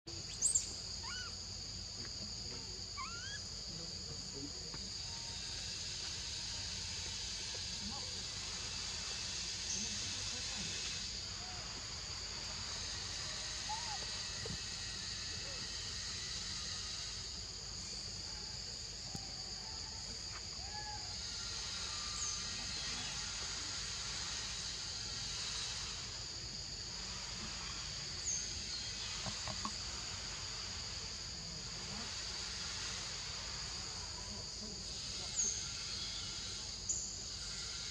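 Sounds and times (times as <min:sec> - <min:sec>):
insects droning: 0:00.1 - 0:37.9
short calls: 0:00.3 - 0:01.4, 0:03.0 - 0:03.5.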